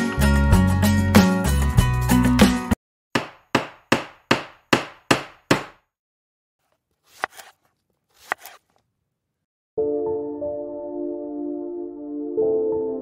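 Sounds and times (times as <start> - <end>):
hammer strikes: 3.1 - 5.9
knife chopping on wooden board: 3.2 - 5.9, 6.7 - 8.8.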